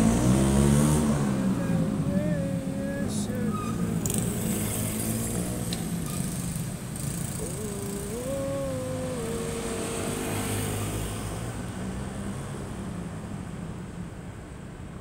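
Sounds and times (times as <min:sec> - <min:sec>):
motorcycle engine passing: 0:00.0 - 0:11.6
low rumble of cars: 0:00.0 - 0:15.0.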